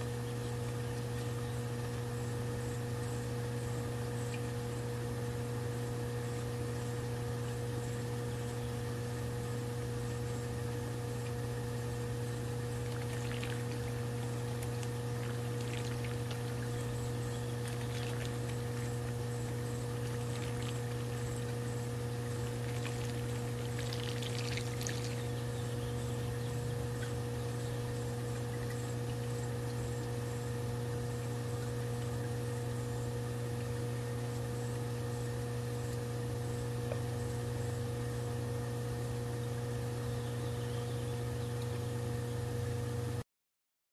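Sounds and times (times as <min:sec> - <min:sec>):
steady low hum: 0:00.0 - 0:43.2
water splashing and pouring: 0:12.8 - 0:16.8, 0:17.6 - 0:18.8, 0:20.0 - 0:21.4, 0:22.5 - 0:25.3.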